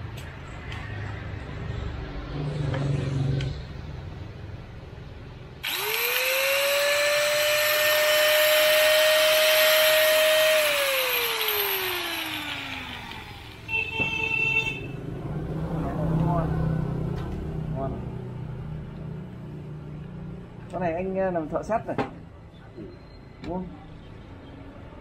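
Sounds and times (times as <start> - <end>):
angle grinder motor whining: 5.6 - 13.7.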